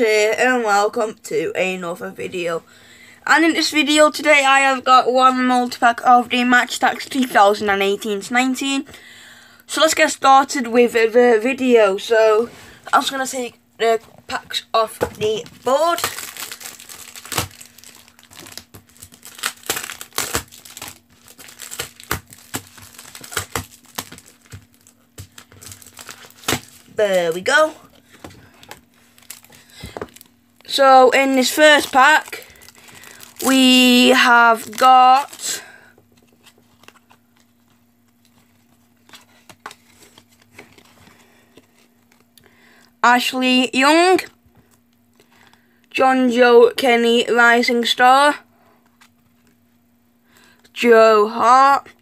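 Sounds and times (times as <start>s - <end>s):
steady low hum: 0.0s - 52.0s
plastic wrapping crinkling: 14.4s - 42.4s
trading cards clicking and rustling: 14.8s - 30.4s.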